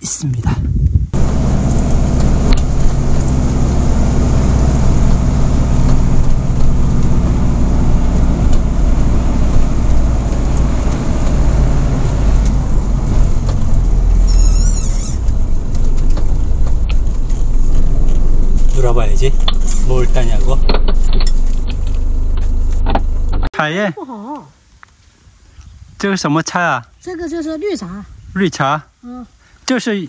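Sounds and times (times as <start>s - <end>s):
low engine hum: 1.1s - 23.5s
road noise: 1.1s - 23.5s
high warbling chirp: 13.9s - 15.4s.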